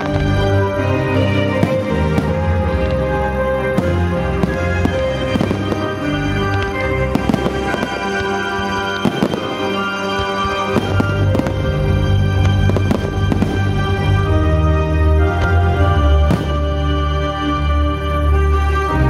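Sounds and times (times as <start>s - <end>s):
loud music with held notes: 0.0s - 19.0s
firework shells bursting: 3.7s - 14.2s.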